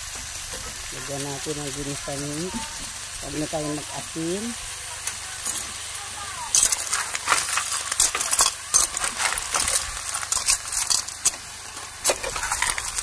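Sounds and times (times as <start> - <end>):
clam shells clattering in pot: 6.5 - 13.0.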